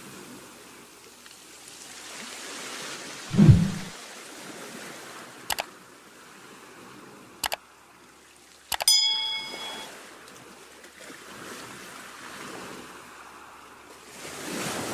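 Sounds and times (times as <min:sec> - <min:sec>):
low whoosh: 0:03.3 - 0:03.9
bell chime: 0:08.8 - 0:09.9.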